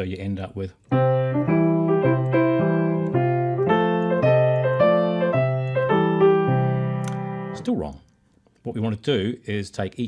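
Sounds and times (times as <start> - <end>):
piano playing blues: 0.9 - 7.8.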